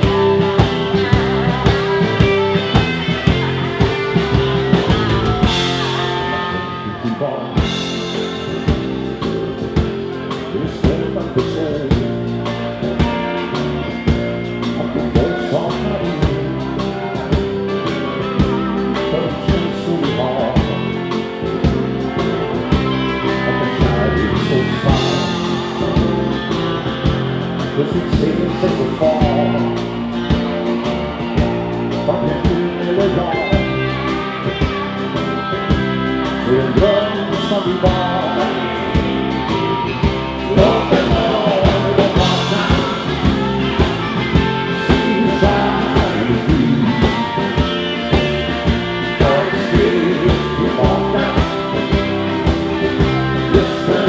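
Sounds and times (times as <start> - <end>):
drums keeping a steady beat: 0.0 - 54.0
electric guitar: 0.0 - 54.0
person singing: 0.0 - 54.0.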